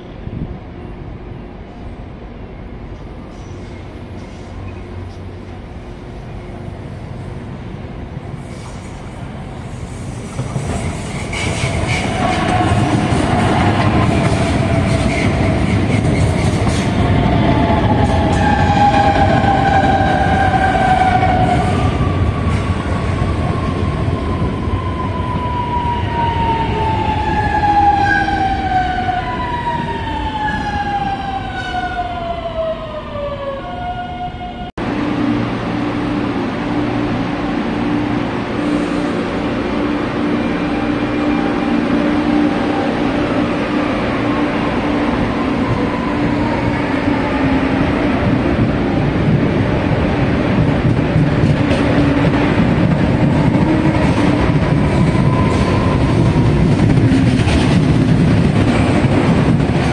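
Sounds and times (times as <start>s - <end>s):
wheels rumbling on rail: 0.0s - 28.9s, 34.8s - 59.9s
electric train hum: 0.0s - 59.9s.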